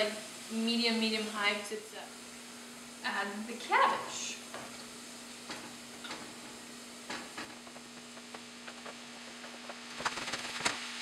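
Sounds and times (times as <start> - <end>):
cabbage sizzling in a pan: 0.0 - 11.0.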